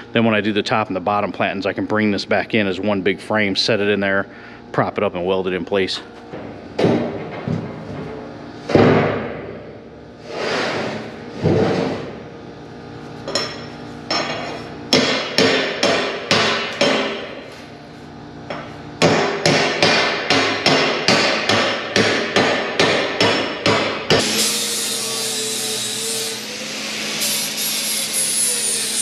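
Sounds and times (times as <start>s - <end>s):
hammer striking ringing steel: 13.3s - 17.3s.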